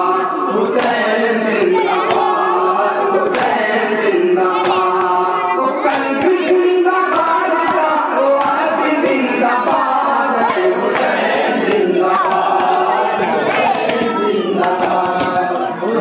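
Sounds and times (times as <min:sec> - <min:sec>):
men chanting in unison: 0:00.0 - 0:16.0.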